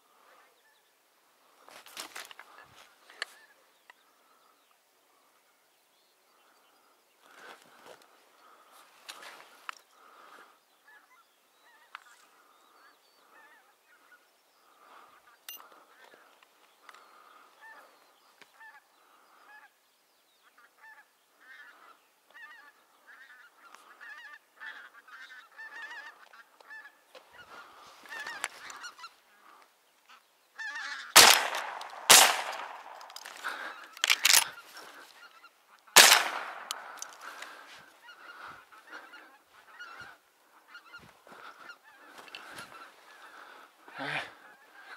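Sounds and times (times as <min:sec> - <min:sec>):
geese honking: 0:07.3 - 0:17.9, 0:20.5 - 0:44.9
loud sharp sounds: 0:31.2 - 0:34.4, 0:36.0 - 0:37.2.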